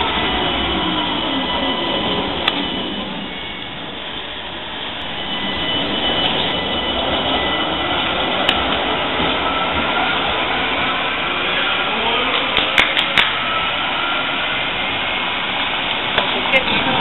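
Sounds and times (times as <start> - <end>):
tram rumbling on track: 0.0 - 17.0.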